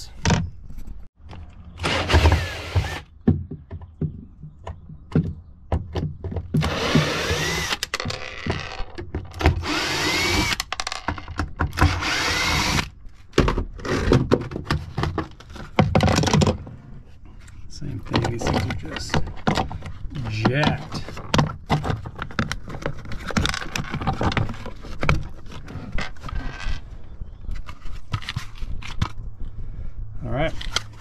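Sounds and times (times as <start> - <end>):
power drill motor: 1.8 - 3.1, 6.6 - 7.9, 9.6 - 10.6, 11.8 - 12.9
handling clicks and knocks: 17.8 - 26.7.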